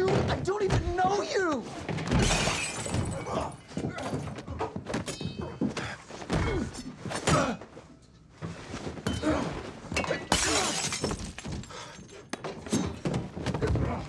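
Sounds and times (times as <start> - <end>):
glass shattering: 2.1 - 3.8, 10.0 - 11.7.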